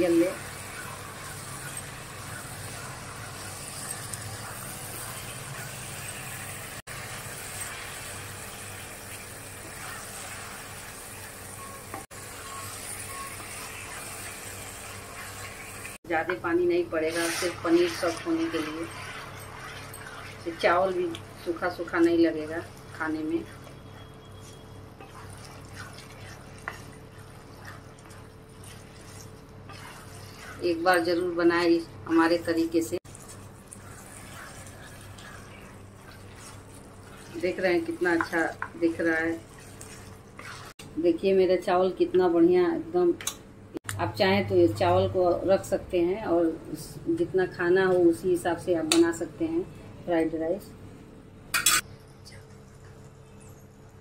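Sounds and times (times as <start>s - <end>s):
food sizzling in a wok: 0.0s - 16.0s, 16.9s - 31.1s, 32.0s - 40.8s
sauce bubbling in a pan: 0.0s - 16.0s, 17.3s - 22.0s, 22.6s - 30.8s, 33.0s - 40.8s
spatula stirring food: 0.0s - 40.9s.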